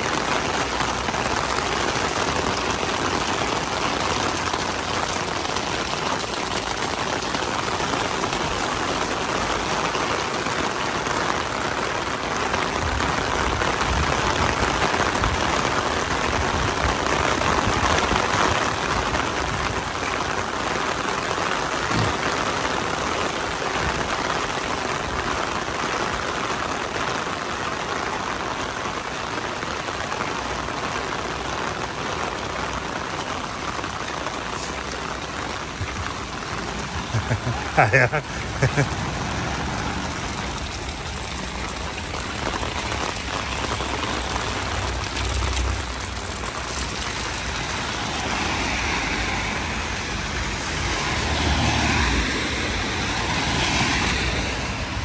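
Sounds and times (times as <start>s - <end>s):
steady rain falling: 0.0s - 55.0s
low traffic rumble: 30.6s - 55.0s.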